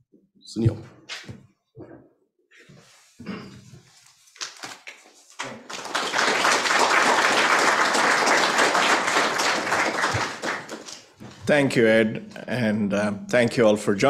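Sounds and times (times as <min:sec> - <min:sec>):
audience applauding: 0:05.4 - 0:11.2.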